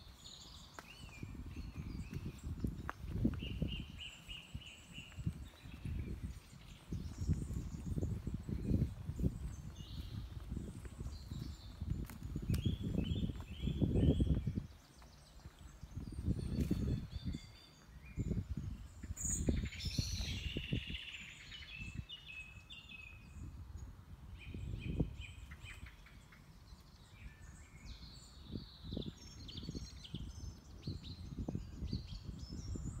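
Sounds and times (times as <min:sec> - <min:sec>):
songbirds singing and chirping: 0:00.0 - 0:33.0
low rumbles on microphone: 0:01.1 - 0:14.8.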